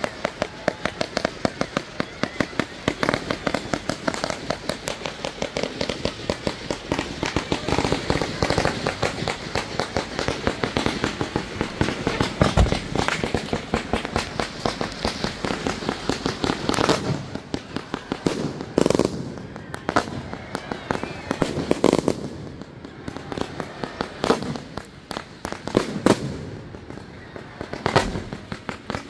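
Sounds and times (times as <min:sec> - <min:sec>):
fireworks bangs and crackle: 0:00.0 - 0:29.0
deep firework boom: 0:10.6 - 0:16.0.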